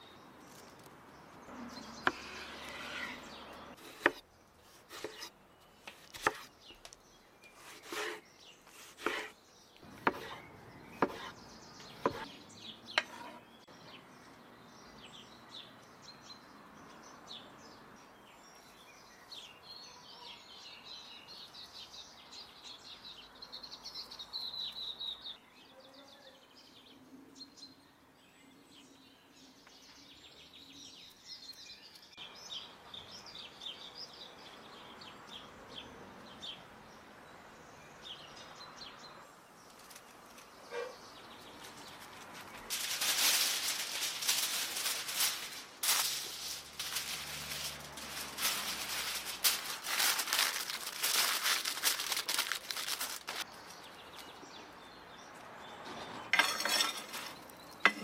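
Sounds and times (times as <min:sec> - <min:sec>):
birds chirping: 0:00.0 - 0:58.0
knife chopping on wooden board: 0:02.0 - 0:03.1, 0:03.8 - 0:04.2, 0:04.9 - 0:05.3, 0:07.6 - 0:08.2, 0:08.8 - 0:09.3, 0:10.0 - 0:10.4, 0:11.0 - 0:11.3, 0:12.0 - 0:12.3.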